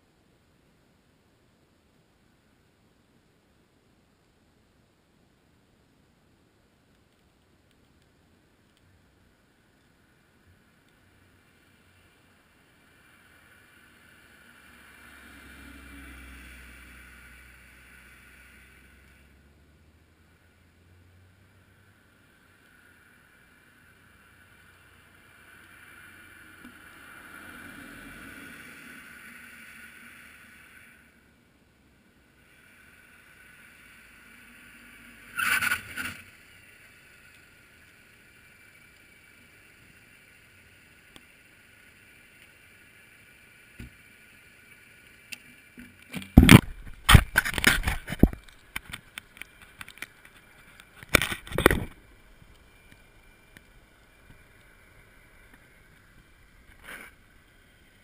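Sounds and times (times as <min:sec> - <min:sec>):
faint whoosh: 0:10.2 - 0:48.6
brief rustle: 0:45.8 - 0:52.0
camera knocked and rubbed: 0:46.2 - 0:49.0.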